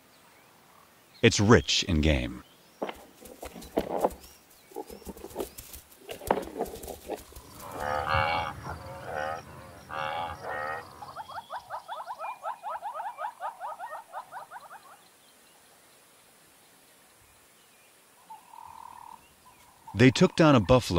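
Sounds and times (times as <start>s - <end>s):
buffalo lowing: 4.7s - 11.9s
fast trilling animal call: 6.7s - 14.8s.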